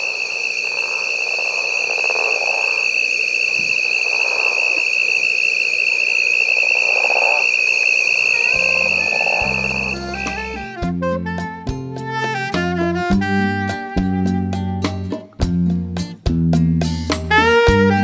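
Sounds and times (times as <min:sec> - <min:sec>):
lower insect calls: 0:00.0 - 0:10.6
insect high trill: 0:00.0 - 0:10.7
music notes: 0:08.5 - 0:18.0.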